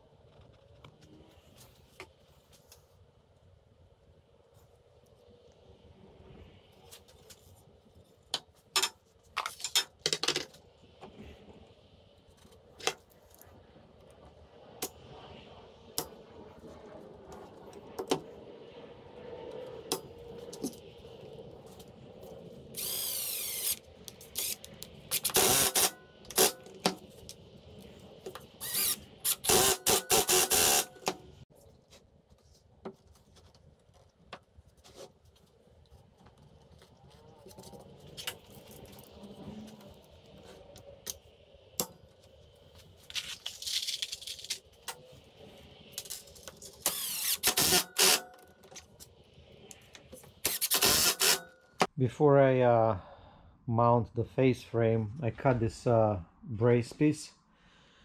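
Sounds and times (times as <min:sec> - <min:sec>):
impact driver driving screws: 0:22.8 - 0:26.6, 0:28.6 - 0:31.1, 0:46.8 - 0:48.3, 0:50.4 - 0:51.5.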